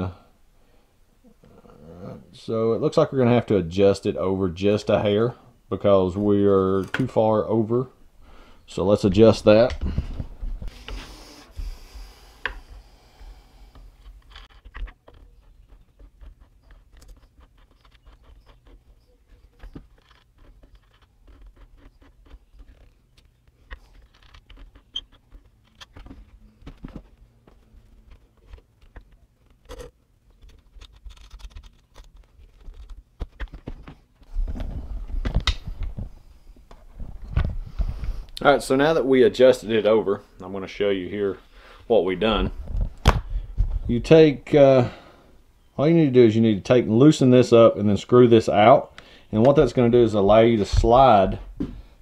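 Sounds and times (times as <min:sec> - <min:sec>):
metal parts clicking and scraping: 0:14.0 - 0:26.3, 0:27.0 - 0:33.6.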